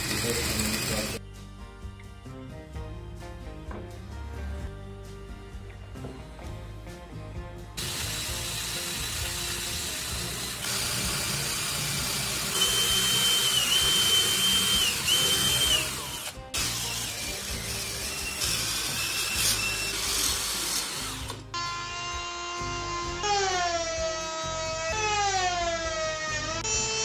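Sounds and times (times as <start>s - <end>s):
cordless drill whining: 0.0s - 1.2s, 7.8s - 27.0s
electric router motor humming: 0.0s - 1.2s, 7.8s - 24.0s
background music: 0.0s - 27.0s.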